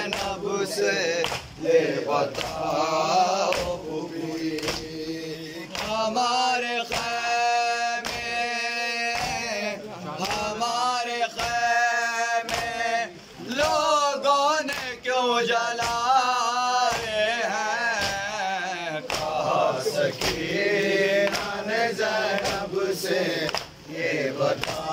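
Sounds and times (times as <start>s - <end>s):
hands slapping chests: 0.0s - 0.4s, 1.2s - 1.6s, 2.2s - 2.8s, 3.4s - 3.8s, 4.4s - 5.0s, 5.6s - 6.0s, 6.8s - 7.2s, 8.0s - 8.4s, 9.1s - 9.5s, 10.2s - 10.5s, 11.3s - 11.6s, 12.4s - 12.8s, 14.6s - 15.0s, 15.8s - 16.1s, 16.9s - 17.2s, 18.0s - 18.4s, 19.0s - 21.6s, 22.2s - 22.7s, 23.4s - 23.9s, 24.5s - 24.9s
men chanting a lament: 0.0s - 24.9s.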